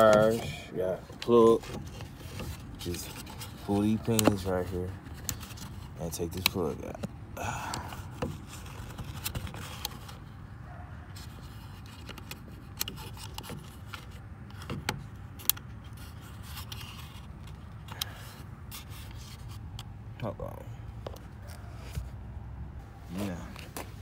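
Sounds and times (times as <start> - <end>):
plastic clicks and light scrapes: 1.1 - 10.2, 11.2 - 20.0.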